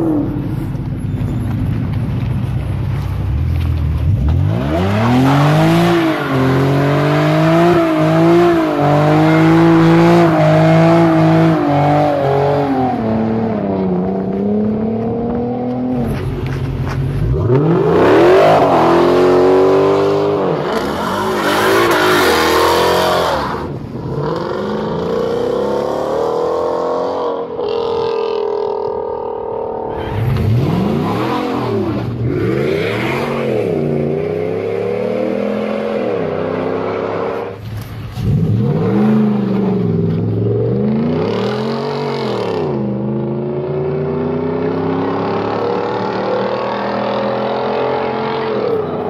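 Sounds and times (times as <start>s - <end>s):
car engines revving: 0.0s - 49.0s.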